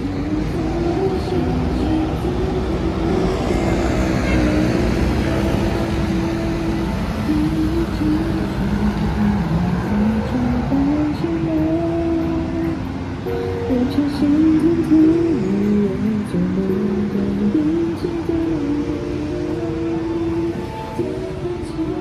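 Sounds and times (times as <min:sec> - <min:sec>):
city road traffic: 0:00.0 - 0:22.0
music with held notes: 0:03.8 - 0:22.0.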